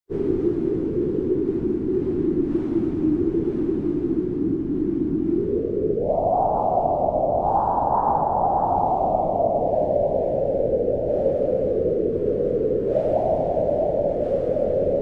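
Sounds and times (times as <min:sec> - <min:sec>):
wind howling: 0:00.1 - 0:15.0.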